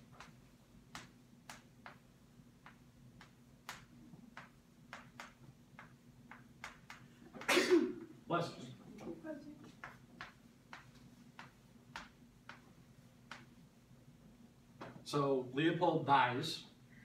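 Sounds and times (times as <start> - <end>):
low room hum: 0.0 - 17.0.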